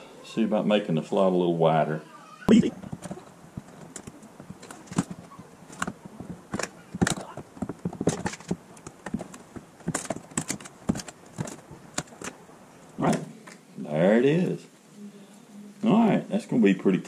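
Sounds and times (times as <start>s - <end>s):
metal tool scraping wood: 2.6s - 12.4s.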